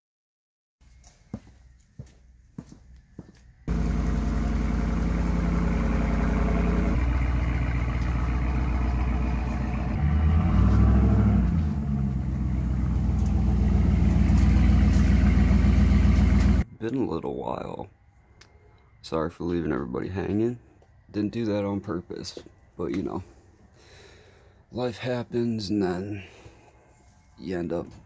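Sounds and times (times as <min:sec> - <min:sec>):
pickup truck engine running: 0:03.7 - 0:16.6.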